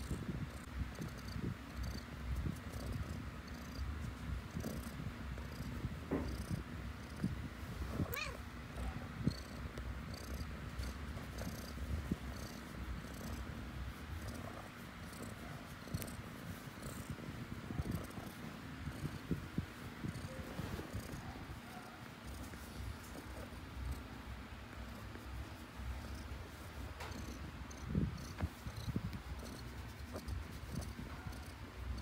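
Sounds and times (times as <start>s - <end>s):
cat purring: 0.0s - 32.0s
cat high call: 8.1s - 8.4s.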